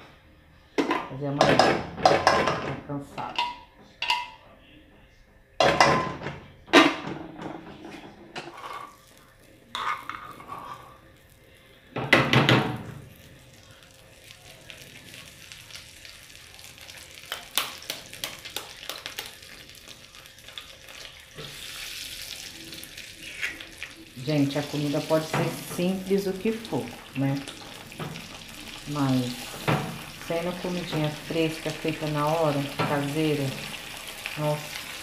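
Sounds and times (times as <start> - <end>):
cookware clanking against pot: 0.8 - 4.4
butter sizzling in frying pan: 12.8 - 35.0.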